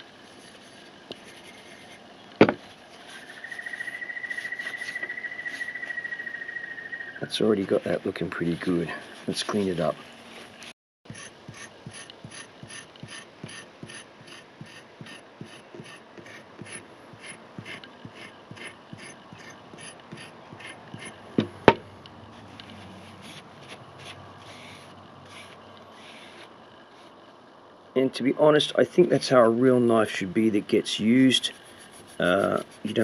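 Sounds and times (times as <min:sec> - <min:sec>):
rust eraser rasping on blade: 0:11.1 - 0:21.2, 0:23.0 - 0:27.1, 0:31.4 - 0:33.0.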